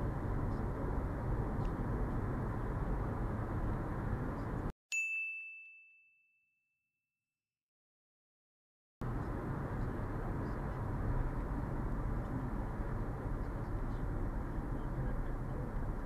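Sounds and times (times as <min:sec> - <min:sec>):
road and engine rumble in car: 0:00.0 - 0:04.7, 0:09.0 - 0:16.0.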